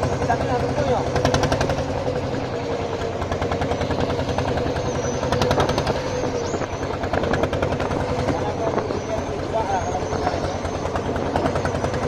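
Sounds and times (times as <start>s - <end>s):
boat engine pulsing: 0.0s - 12.0s.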